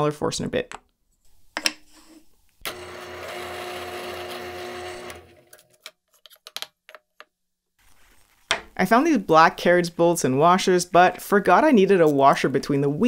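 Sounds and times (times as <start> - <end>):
drill press motor hum: 2.6 - 5.6.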